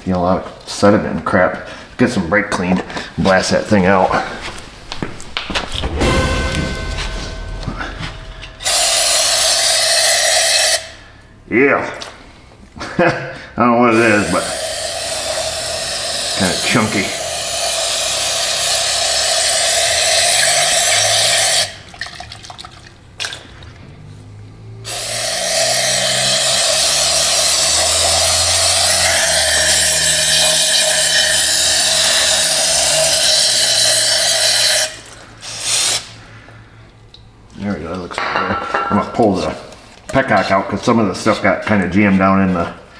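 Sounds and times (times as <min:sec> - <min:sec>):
aerosol spray hissing: 0:14.2 - 0:19.4.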